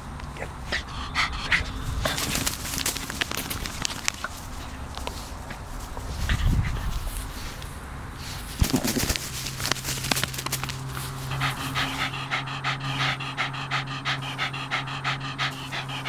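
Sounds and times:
dog panting rapidly: 0:00.4 - 0:07.6, 0:08.4 - 0:16.0
rustling and scuffling in grass: 0:01.8 - 0:12.1.

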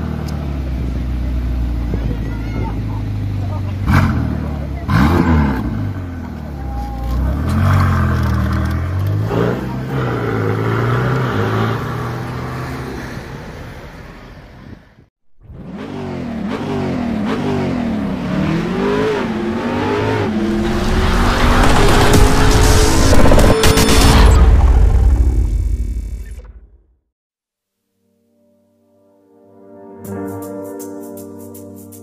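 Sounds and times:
engine revving: 0:03.8 - 0:06.3, 0:15.4 - 0:26.8
car engine accelerating: 0:15.4 - 0:26.8.

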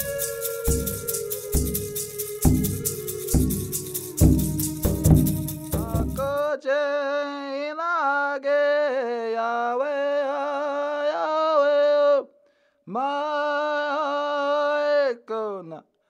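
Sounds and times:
drum and rattle music: 0:00.0 - 0:06.4
man chanting: 0:00.0 - 0:12.2.

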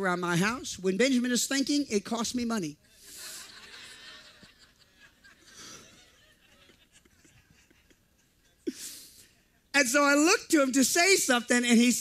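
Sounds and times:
audience laughter: 0:03.1 - 0:08.6.

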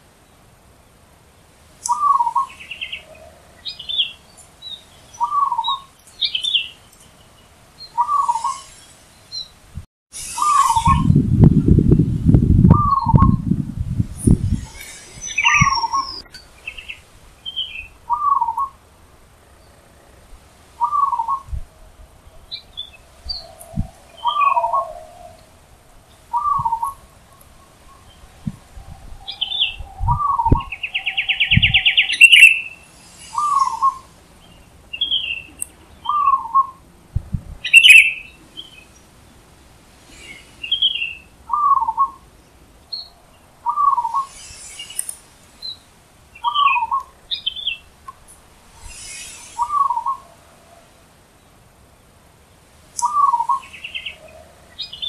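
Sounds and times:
small birds chirping: 0:01.8 - 0:09.6, 0:10.2 - 0:11.7, 0:12.6 - 0:36.9, 0:37.6 - 0:55.0
buzzy bird trill: 0:01.9 - 0:09.6, 0:10.2 - 0:11.4, 0:14.2 - 0:18.8, 0:26.3 - 0:36.8, 0:48.7 - 0:50.3
dove cooing: 0:20.8 - 0:21.6, 0:23.3 - 0:25.7, 0:26.3 - 0:32.6, 0:49.4 - 0:50.9.

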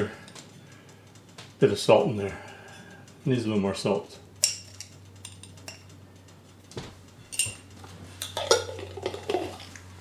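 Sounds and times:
metal spoon clinking on cookware: 0:04.4 - 0:05.9, 0:07.3 - 0:09.6.

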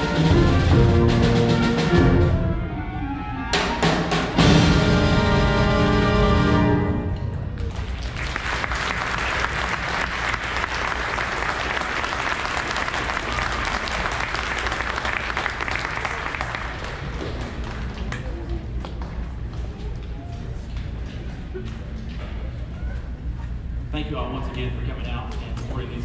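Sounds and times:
audience applauding: 0:07.6 - 0:19.2.

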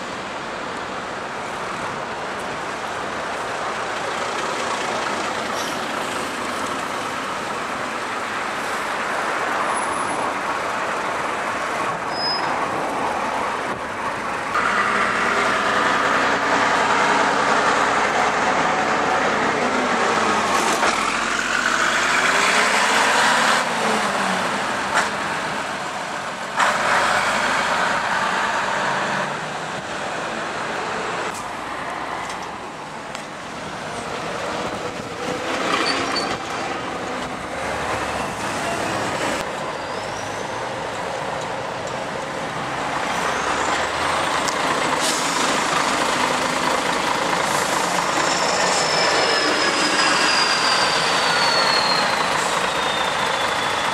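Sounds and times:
bus engines driving past: 0:00.0 - 0:53.9
air-brake hiss: 0:44.9 - 0:45.6.

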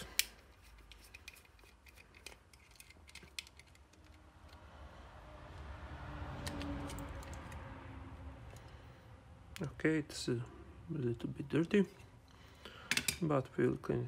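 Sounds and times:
plastic clicks and rattles: 0:00.0 - 0:04.6.

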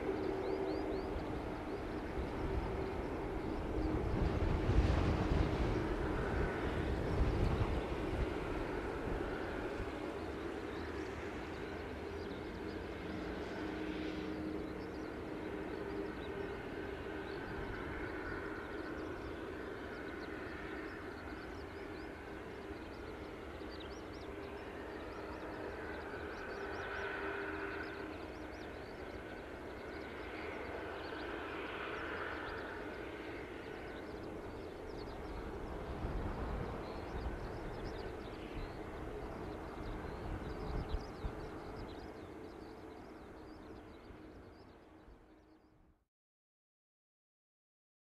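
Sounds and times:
jet engines roaring with whine: 0:00.0 - 0:45.8.

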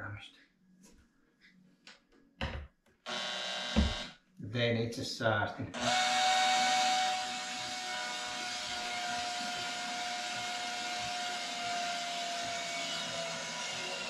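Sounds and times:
electric motor whining: 0:03.1 - 0:04.1, 0:05.8 - 0:14.0.

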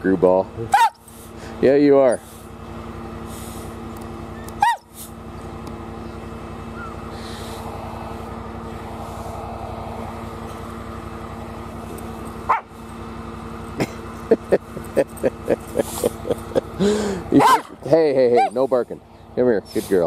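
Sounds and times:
vehicle engine running: 0:00.0 - 0:20.0
dog barking: 0:00.7 - 0:01.0, 0:04.6 - 0:04.9, 0:12.5 - 0:12.7, 0:17.4 - 0:17.8.

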